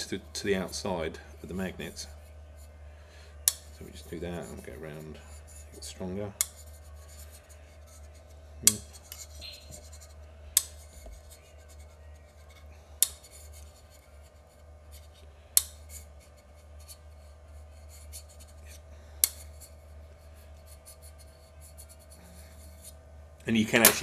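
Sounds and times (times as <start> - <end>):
light scratching: 3.6 - 15.2, 15.8 - 23.0.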